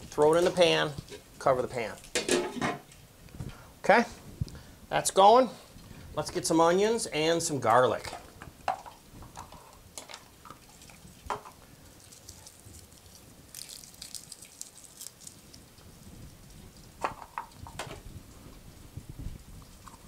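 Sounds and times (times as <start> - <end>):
kitchen clicks and knocks: 2.1 - 2.9
papery crackle: 11.9 - 16.9.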